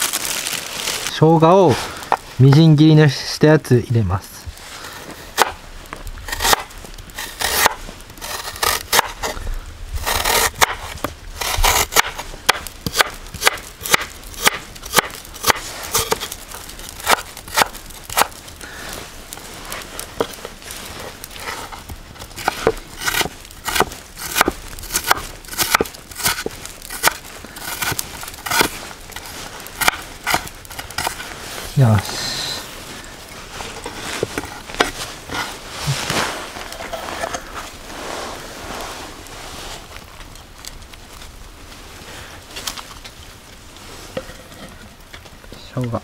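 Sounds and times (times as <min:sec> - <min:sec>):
knife chopping on wooden board: 0:05.4 - 0:05.6, 0:22.4 - 0:26.4.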